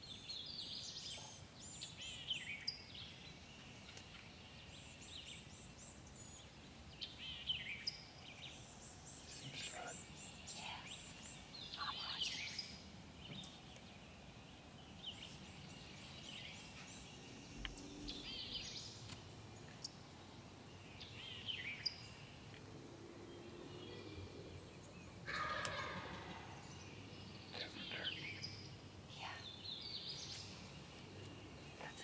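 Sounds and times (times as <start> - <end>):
songbirds chirping and trilling: 0.0 - 32.0
turkey gobbling: 25.3 - 26.3.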